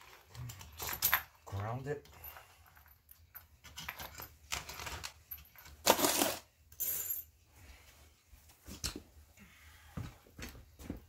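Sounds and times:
metal chain clinking: 0.0s - 7.4s.

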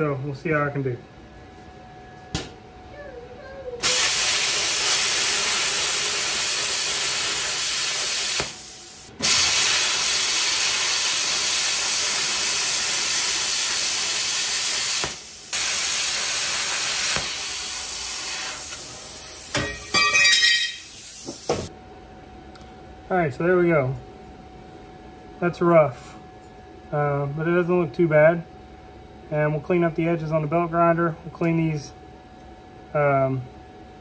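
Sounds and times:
plasma cutter hissing: 3.8s - 21.7s.

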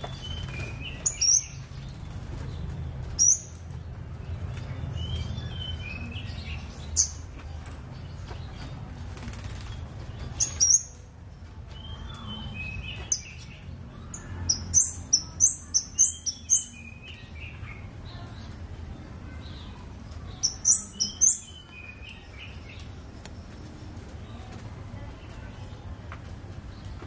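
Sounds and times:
bird high-pitched chips: 0.0s - 2.0s, 9.2s - 11.0s, 11.8s - 17.7s, 20.2s - 22.9s.

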